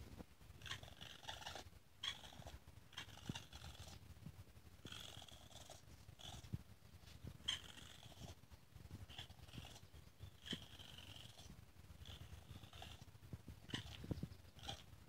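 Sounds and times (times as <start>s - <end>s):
baby raccoon calling: 0.6s - 4.0s, 7.4s - 8.3s, 12.0s - 14.9s.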